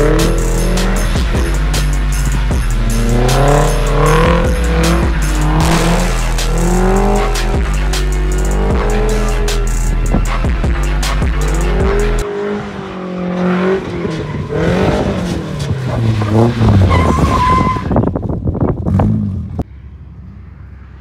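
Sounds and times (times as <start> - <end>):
music: 0.0 - 12.2
car engine revving: 0.0 - 17.5
tyre squeal: 16.6 - 18.1.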